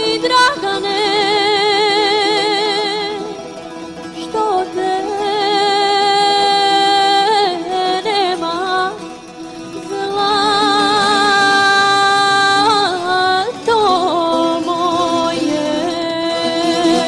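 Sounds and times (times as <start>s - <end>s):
folk music with held vibrato notes: 0.0s - 17.0s.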